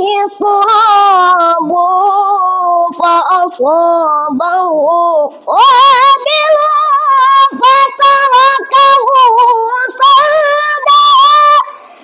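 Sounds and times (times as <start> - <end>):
child reciting melodically: 0.0 - 11.9
short breaths: 11.7 - 12.0.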